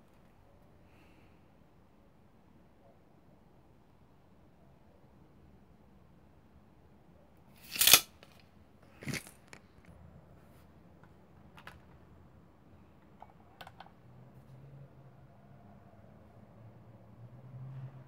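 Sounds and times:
plastic toy handling noise: 7.6 - 9.9, 11.0 - 12.1.

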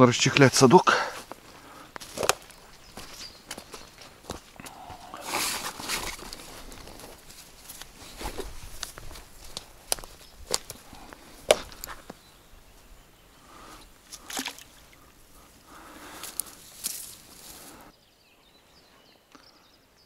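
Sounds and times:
fishing net rustling: 5.1 - 12.1, 13.8 - 17.8.

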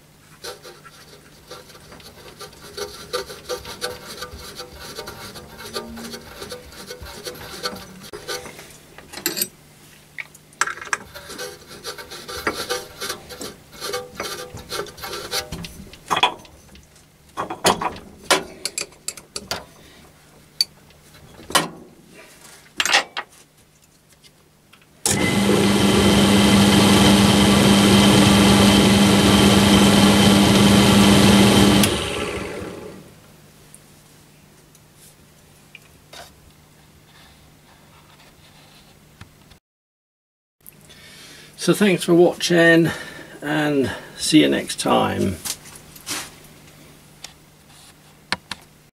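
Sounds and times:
clicks and rubbing of pulleys: 0.4 - 8.6
drill motor humming: 25.1 - 33.1.

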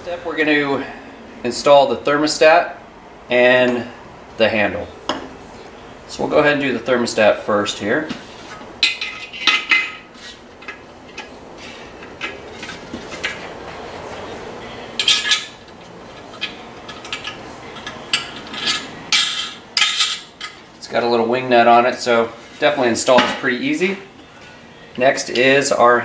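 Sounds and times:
metal grill lid clinking: 8.8 - 13.5, 15.0 - 20.7.

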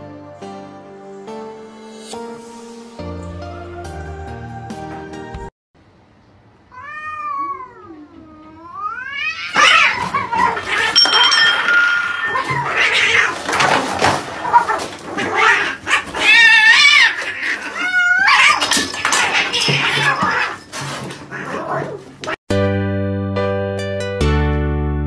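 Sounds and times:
cats fighting and yowling: 6.7 - 22.4.

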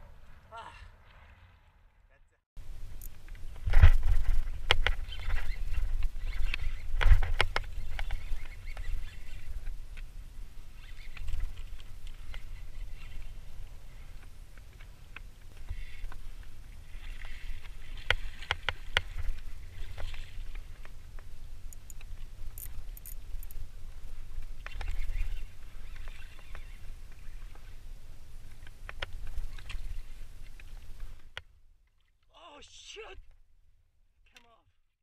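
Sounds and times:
water splashing against kayak: 15.6 - 21.0.

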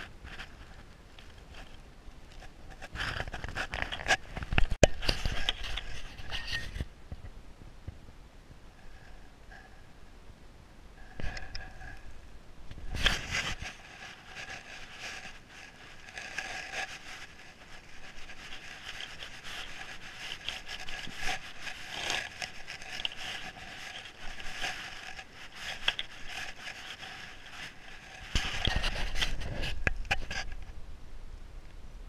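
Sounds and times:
crackles: 0.0 - 10.1, 10.9 - 30.8
saddle creaking and rubbing: 12.8 - 30.6.

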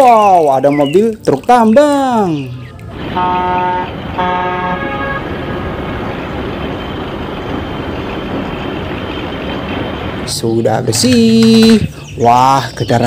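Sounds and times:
horn toot: 3.0 - 5.9.

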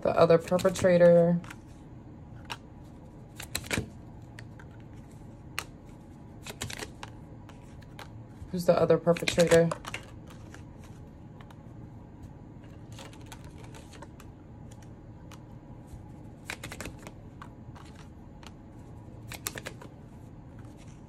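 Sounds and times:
faint steady hum: 0.0 - 21.0
cards clicking and tapping: 0.4 - 1.6, 3.3 - 8.2, 9.0 - 11.6, 12.7 - 15.5, 16.4 - 18.6, 19.2 - 20.0.

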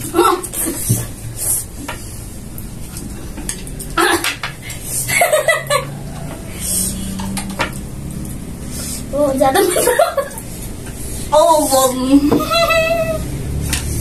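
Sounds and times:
chopsticks clicking on plates: 7.0 - 8.4.

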